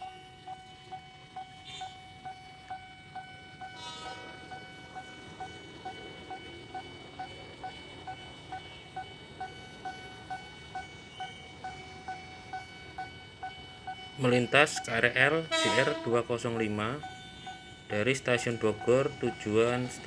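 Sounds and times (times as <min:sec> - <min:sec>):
level-crossing warning bell ringing: 0:00.0 - 0:20.0.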